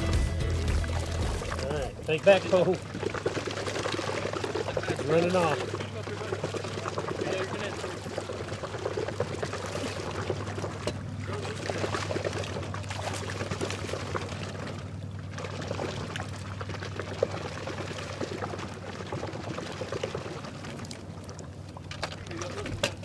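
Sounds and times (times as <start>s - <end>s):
low motor hum: 0.0s - 23.0s
water pouring and splashing: 0.0s - 23.0s.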